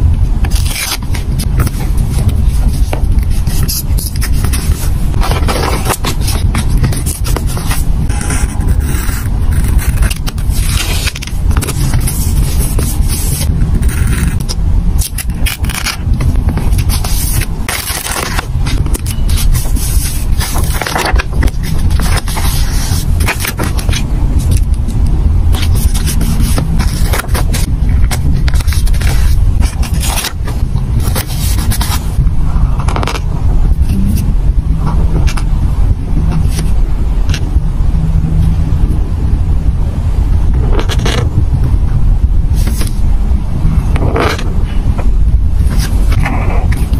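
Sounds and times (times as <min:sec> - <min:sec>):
steady low rumble: 0:00.0 - 0:46.9
sticker sheets rustling: 0:00.4 - 0:34.2, 0:42.6 - 0:43.0
stickers peeled and rubbed down: 0:00.5 - 0:24.7.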